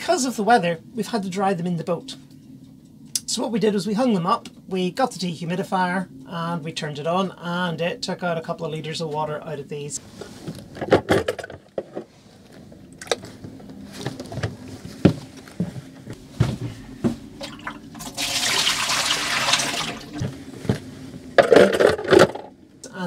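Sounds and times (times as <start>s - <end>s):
water pouring into washbasin: 17.4s - 20.2s.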